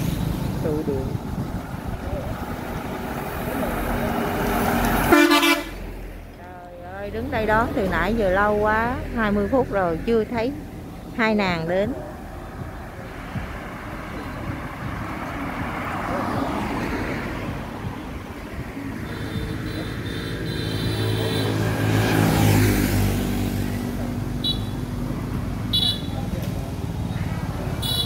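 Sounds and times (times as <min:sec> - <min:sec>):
vehicle engine passing: 0:00.0 - 0:06.3, 0:11.9 - 0:27.8
road traffic passing: 0:00.0 - 0:28.0.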